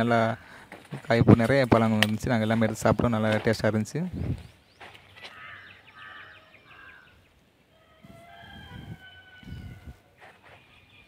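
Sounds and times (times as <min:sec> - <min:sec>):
short bird calls: 0:04.2 - 0:11.0
rooster crowing faintly: 0:07.8 - 0:10.4.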